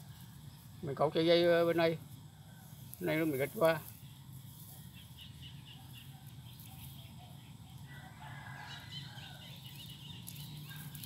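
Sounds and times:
distant rooster crowing: 0:07.7 - 0:11.0.

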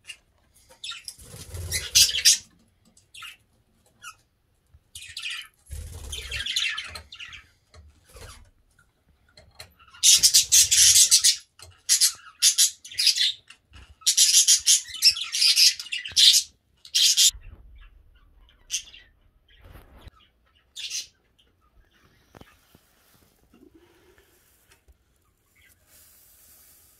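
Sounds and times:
budgerigars chirping and screeching: 0:00.0 - 0:02.5, 0:05.0 - 0:08.4, 0:09.8 - 0:22.7.

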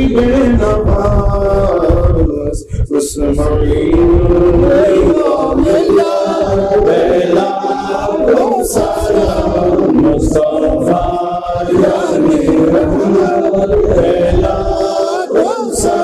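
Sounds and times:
group chanting in held notes: 0:04.5 - 0:16.0.

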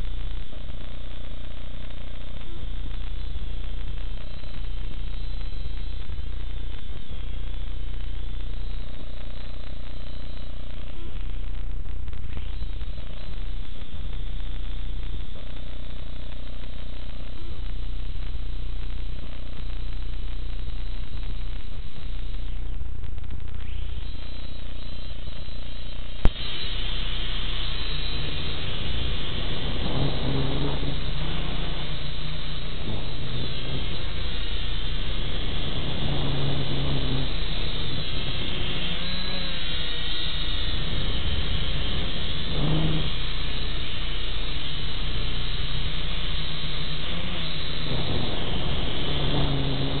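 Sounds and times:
drone motors whirring: 0:23.2 - 0:50.0.

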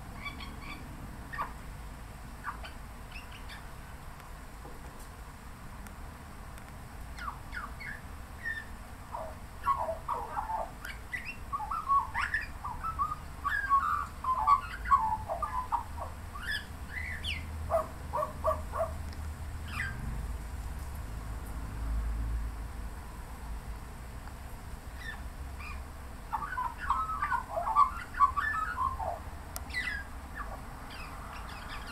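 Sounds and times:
magpie warbling: 0:07.2 - 0:19.0, 0:25.0 - 0:31.9.

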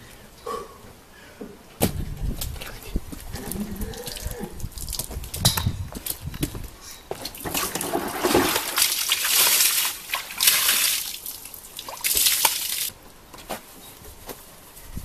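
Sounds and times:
water splashing from bucket: 0:07.4 - 0:12.9.

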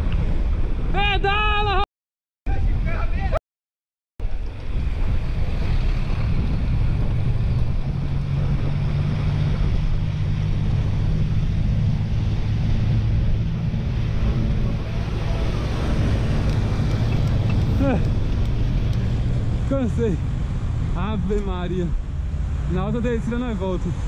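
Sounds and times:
low drone: 0:04.2 - 0:22.7
wind buffeting microphone: 0:04.2 - 0:24.0.

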